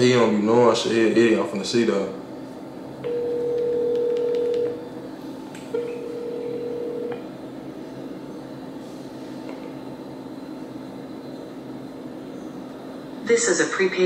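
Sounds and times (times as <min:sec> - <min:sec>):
telephone ringback beeps: 0:03.1 - 0:04.8, 0:05.8 - 0:07.2.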